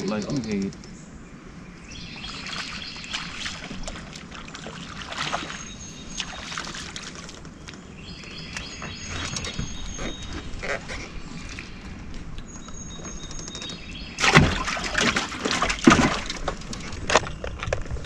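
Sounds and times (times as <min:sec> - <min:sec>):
fish splashing at surface: 0:02.5 - 0:07.4, 0:14.2 - 0:16.4.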